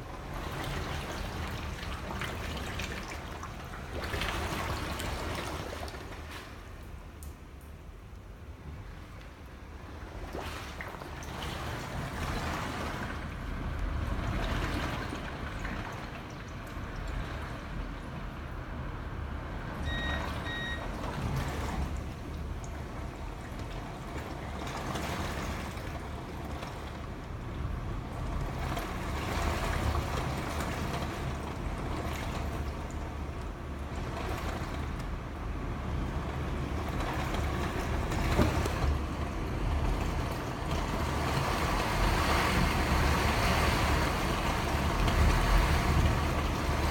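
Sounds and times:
hurricane wind and rain: 0:00.0 - 0:46.9
short high beeps: 0:19.8 - 0:20.8.

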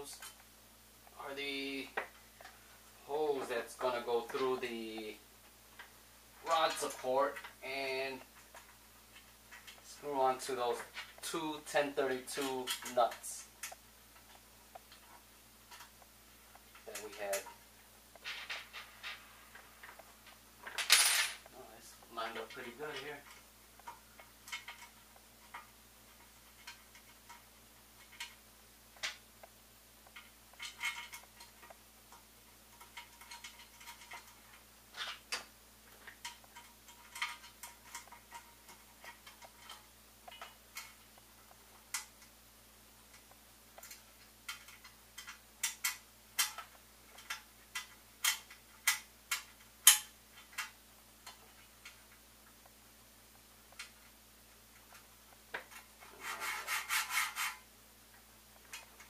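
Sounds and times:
clicks and taps of small parts: 0:43.1 - 0:52.0.

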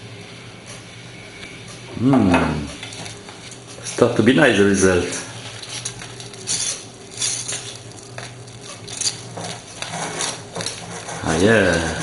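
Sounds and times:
low steady hum: 0:00.0 - 0:12.0
whisk wires clinking on pot: 0:02.7 - 0:04.1, 0:04.8 - 0:12.0
whisk scraping a saucepan: 0:05.0 - 0:12.0.

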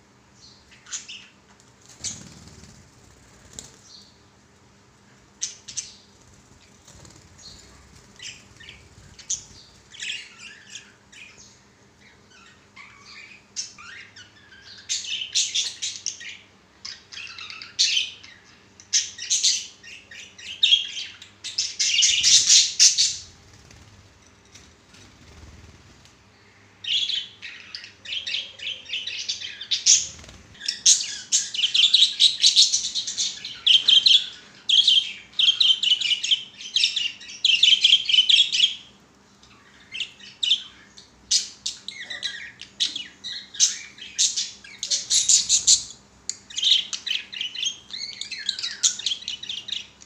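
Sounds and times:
budgerigars chirping and chattering: 0:06.9 - 0:23.8, 0:26.8 - 0:38.9, 0:39.5 - 0:50.0.

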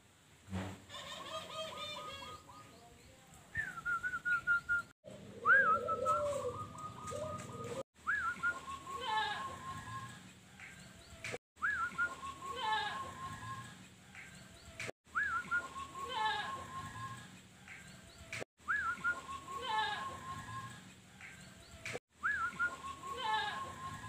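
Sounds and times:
dove cooing: 0:05.1 - 0:10.2
faint birds calling: 0:05.1 - 0:24.0.

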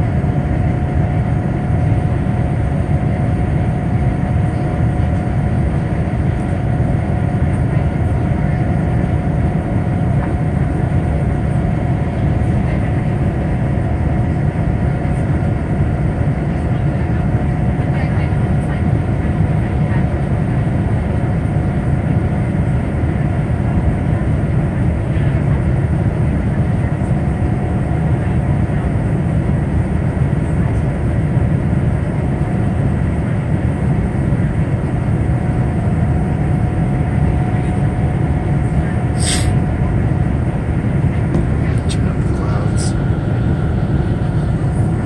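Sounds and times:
airplane cabin roar: 0:00.0 - 0:45.0.

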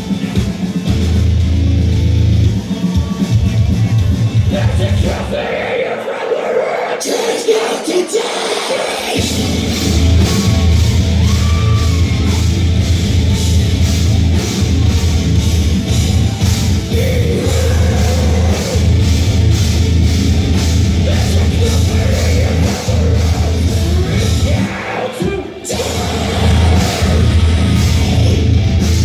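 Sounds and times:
metal band playing live: 0:00.0 - 0:29.0
pounding drums: 0:09.0 - 0:29.0.

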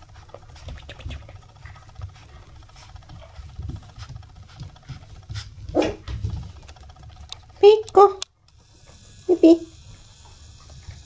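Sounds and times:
puppy scrabbling on blanket: 0:00.2 - 0:07.2.

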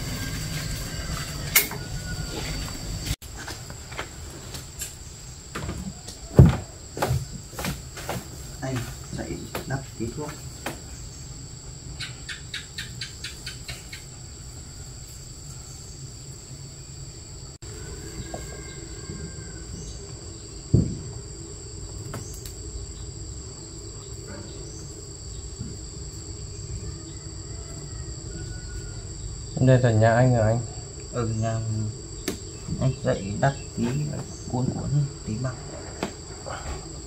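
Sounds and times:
insects trilling: 0:00.0 - 0:37.0
single thud: 0:20.7 - 0:21.1.

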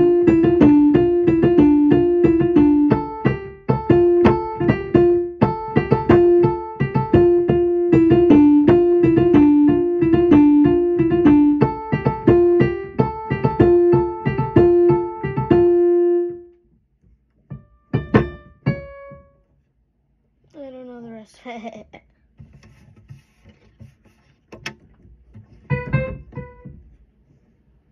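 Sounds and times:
electric keyboard tune: 0:00.0 - 0:16.5, 0:17.5 - 0:19.4, 0:25.7 - 0:26.8.

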